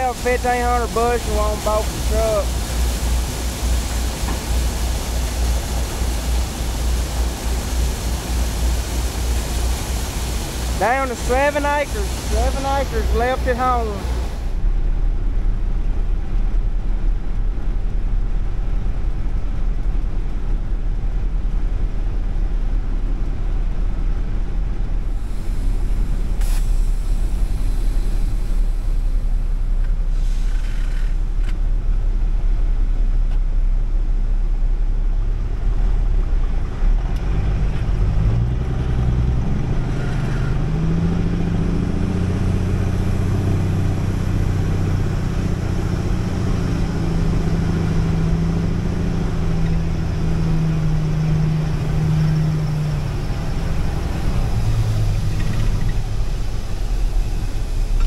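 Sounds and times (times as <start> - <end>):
truck diesel engine idling: 0.0 - 15.8.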